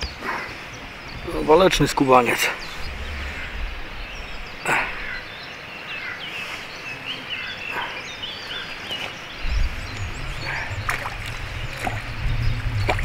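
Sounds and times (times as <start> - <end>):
birds chirping: 0.0 - 13.0
fish splashing in water: 10.3 - 13.0.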